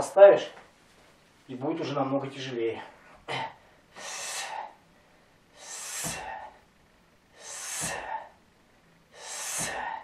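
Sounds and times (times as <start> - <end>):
forceful breaths of effort: 3.1 - 6.7, 7.3 - 8.4, 9.1 - 10.0.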